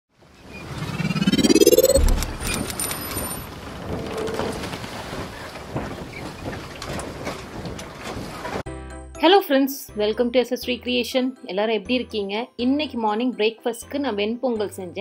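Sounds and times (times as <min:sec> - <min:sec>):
rising whoosh: 0:00.5 - 0:03.2
low boom: 0:00.8 - 0:02.7.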